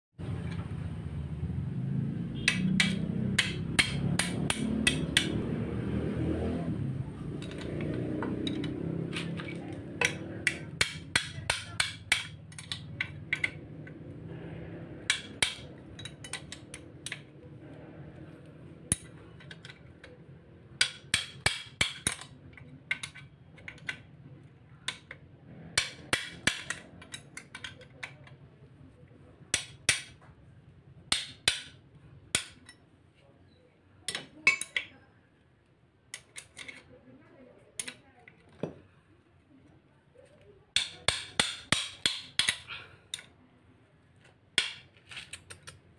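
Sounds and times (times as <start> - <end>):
wrench clinking on bolts: 15.0 - 17.3.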